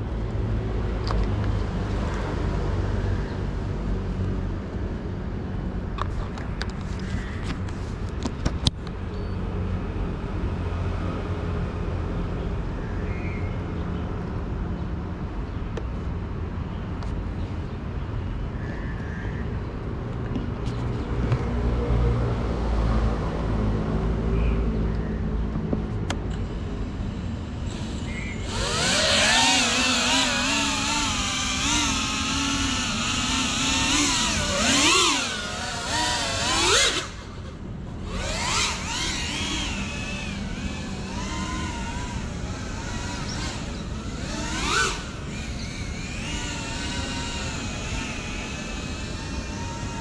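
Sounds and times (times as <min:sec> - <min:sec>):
drone motors whining: 0:26.1 - 0:50.0.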